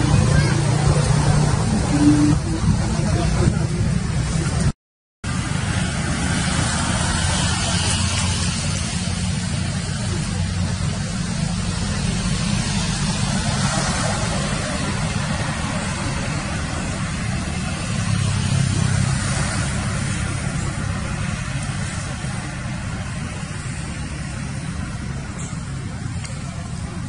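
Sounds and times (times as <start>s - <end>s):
low engine rumble: 0.0s - 27.0s.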